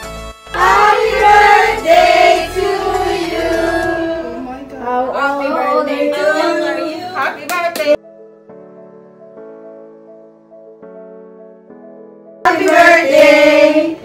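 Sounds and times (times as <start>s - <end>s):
music: 0.0s - 14.0s
voices singing long sliding notes: 0.6s - 7.1s, 12.5s - 14.0s.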